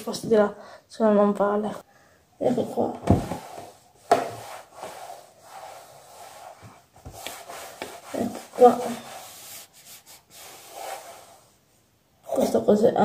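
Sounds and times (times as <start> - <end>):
rustling and handling noises: 2.5 - 11.6.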